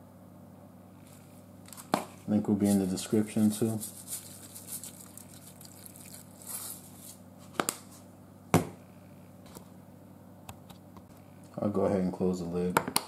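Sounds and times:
faint steady hum: 0.0 - 13.0
seasoning shaker shaken: 2.6 - 7.2.

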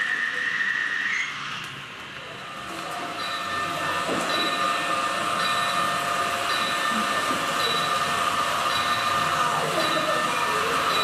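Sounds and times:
model train running: 0.0 - 11.0.

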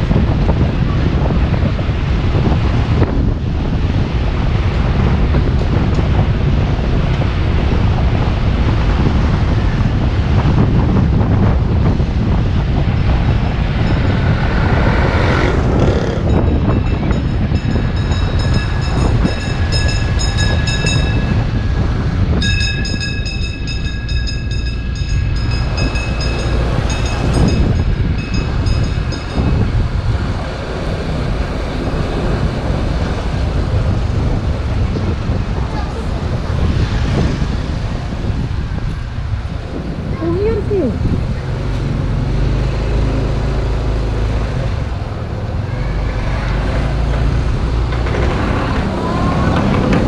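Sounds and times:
wind on microphone: 0.0 - 50.0
motorcycle engine running: 13.1 - 22.5.

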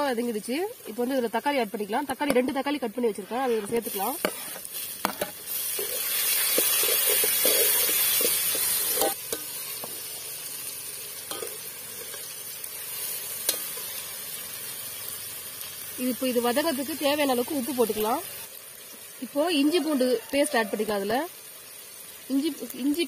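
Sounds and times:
food sizzling in oil: 0.0 - 23.0
metal spoon stirring pot: 2.2 - 10.1.

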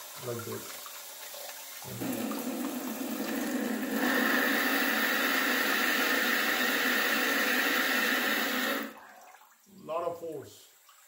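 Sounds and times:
water jet spraying into plastic tub: 0.0 - 9.4.

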